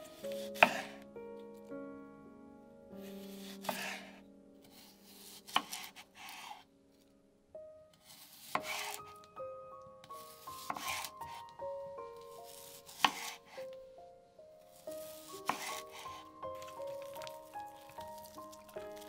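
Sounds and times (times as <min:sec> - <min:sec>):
soft background music: 0:00.0 - 0:19.0
knife crunching through onion: 0:14.8 - 0:19.0.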